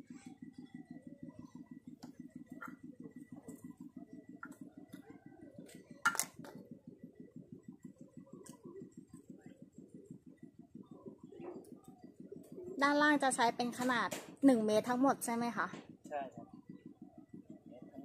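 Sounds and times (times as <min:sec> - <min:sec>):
faint low pulsing: 0:00.0 - 0:18.0
plastic pipes clicking and knocking: 0:06.0 - 0:06.6.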